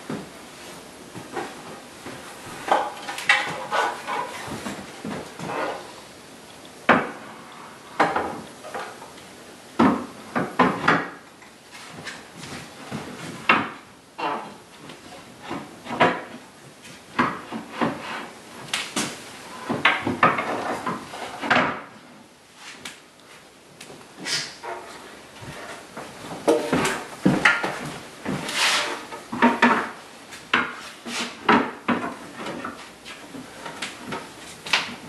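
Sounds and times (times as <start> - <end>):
wood scraping: 0.6 - 6.0, 11.7 - 18.4, 24.2 - 35.0
wooden knocks and clunks: 9.8 - 11.3, 12.0 - 16.4, 17.1 - 18.2, 19.0 - 21.9, 24.6 - 28.5, 29.1 - 35.0.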